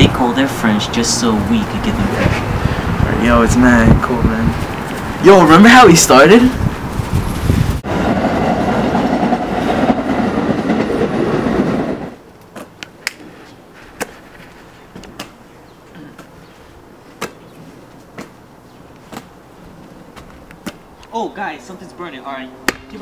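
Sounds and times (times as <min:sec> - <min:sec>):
passing train rumble: 0:00.0 - 0:12.2
basketball thrown and caught: 0:17.2 - 0:17.4, 0:19.1 - 0:19.3.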